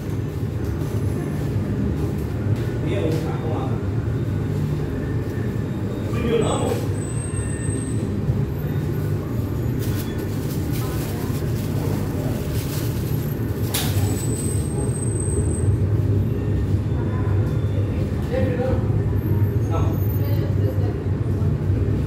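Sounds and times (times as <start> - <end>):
plastic bag crinkling: 9.7 - 14.4.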